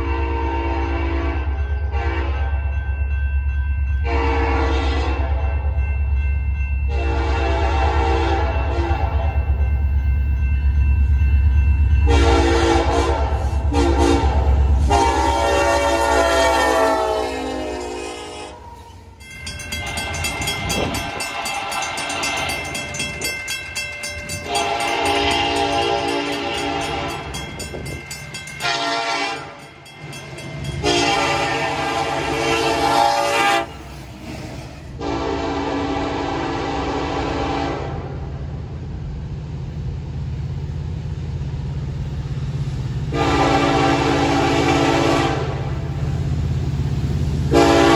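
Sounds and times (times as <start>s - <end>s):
locomotive horn blasts: 0.0s - 2.6s, 4.0s - 5.4s, 6.9s - 9.3s, 12.0s - 18.8s, 24.3s - 27.4s, 28.6s - 29.6s, 30.8s - 33.8s, 35.0s - 38.2s, 43.1s - 45.8s, 47.5s - 47.9s
locomotive engine rumble: 4.1s - 35.8s.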